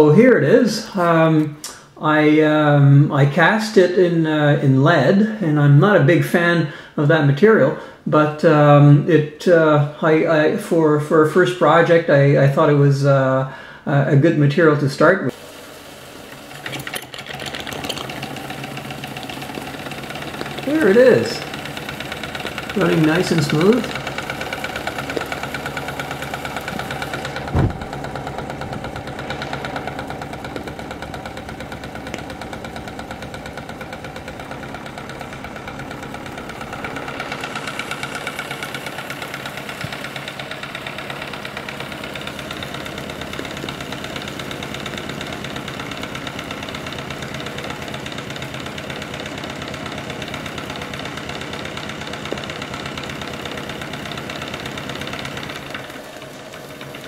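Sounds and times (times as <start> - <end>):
steam engine running: 15.3 - 57.0
sharp thump: 27.4 - 28.1.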